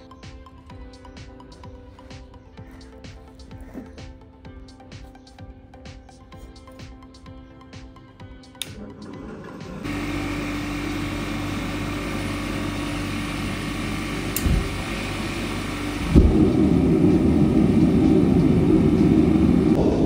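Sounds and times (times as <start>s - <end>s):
electric blower humming: 8.5s - 20.0s.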